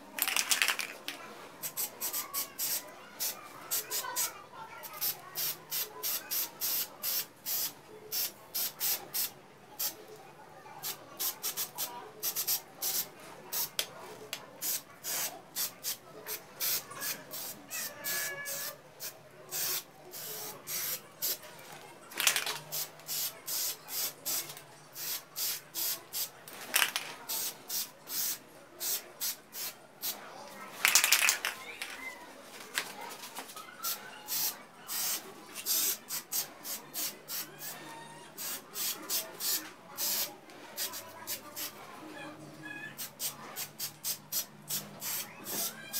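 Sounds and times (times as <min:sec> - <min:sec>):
spray paint can hissing bursts: 0:01.7 - 0:04.2, 0:04.9 - 0:09.9, 0:10.8 - 0:13.8, 0:14.6 - 0:16.0, 0:16.6 - 0:21.4, 0:22.2 - 0:24.4, 0:25.0 - 0:30.2, 0:34.3 - 0:37.7, 0:38.4 - 0:41.0, 0:43.2 - 0:45.7.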